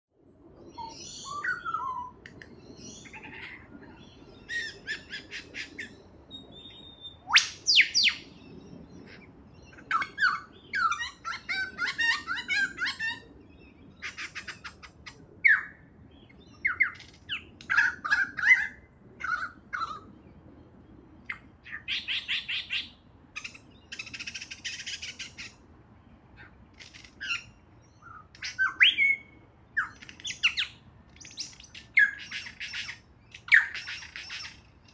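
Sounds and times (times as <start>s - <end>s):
lyrebird singing: 0.6s - 20.2s, 21.2s - 25.6s, 26.4s - 34.9s.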